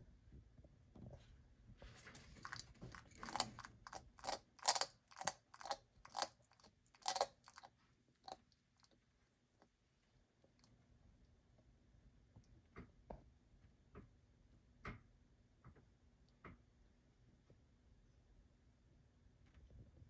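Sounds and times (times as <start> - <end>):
lizard crunching food: 1.8 - 9.0.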